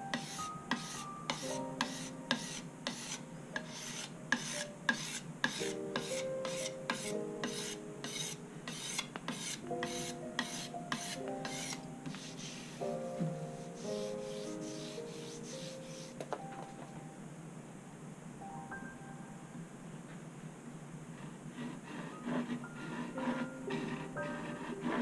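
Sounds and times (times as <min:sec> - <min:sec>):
scraper rasping on wood: 0:00.1 - 0:12.9, 0:13.5 - 0:16.2, 0:21.5 - 0:25.0.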